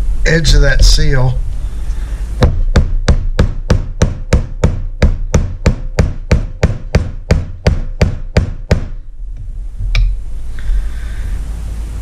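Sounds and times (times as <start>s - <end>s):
hammer knocking on metal: 2.4s - 9.0s.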